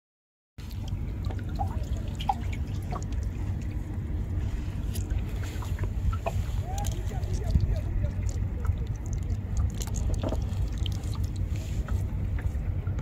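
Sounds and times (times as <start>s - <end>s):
steady low rumble: 0.6s - 13.0s
water dripping off net: 8.2s - 11.5s.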